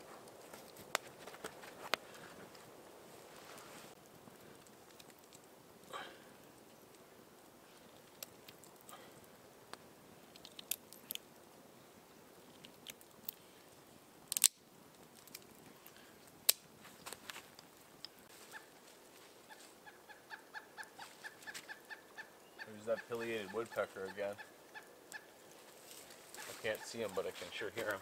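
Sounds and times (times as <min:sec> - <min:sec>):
sharp clicks and crunches: 0:04.0 - 0:05.5, 0:07.7 - 0:09.0, 0:09.7 - 0:11.3, 0:12.4 - 0:13.4, 0:14.3 - 0:18.2
woodpecker calling: 0:18.4 - 0:18.8, 0:19.4 - 0:25.5, 0:26.1 - 0:28.0.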